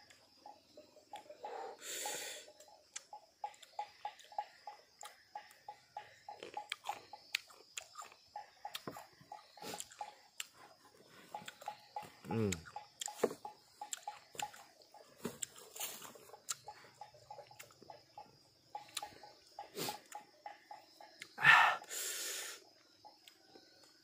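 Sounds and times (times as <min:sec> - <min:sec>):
faint pulsing chirp: 0:00.0 - 0:24.0
person chewing with mouth clicks: 0:02.8 - 0:05.6, 0:06.3 - 0:10.7, 0:11.3 - 0:13.2, 0:13.8 - 0:17.8, 0:18.8 - 0:20.3.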